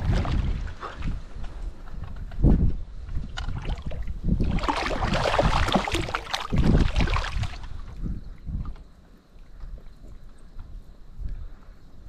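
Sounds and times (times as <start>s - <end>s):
water splashing: 0.0s - 1.2s, 3.4s - 8.0s.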